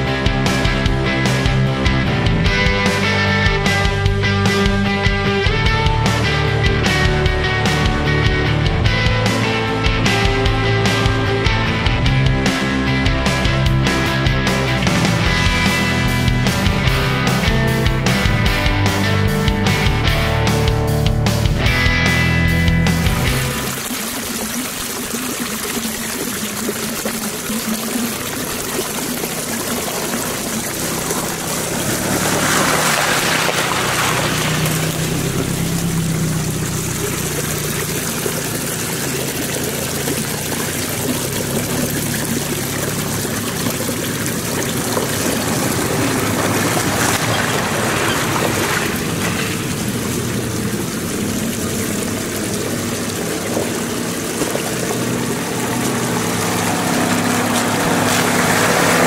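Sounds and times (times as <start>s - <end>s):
suv engine running low: 0.0s - 59.0s
stream trickling over rocks: 22.0s - 59.0s.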